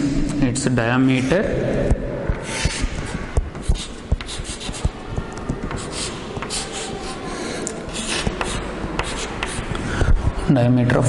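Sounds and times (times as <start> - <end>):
chalk scratching on blackboard: 2.4 - 10.4.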